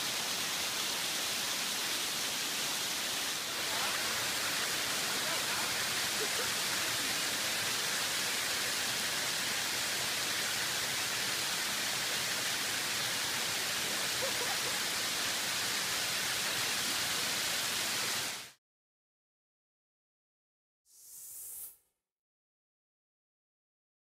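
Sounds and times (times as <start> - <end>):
waterfall rushing: 0.0 - 18.6.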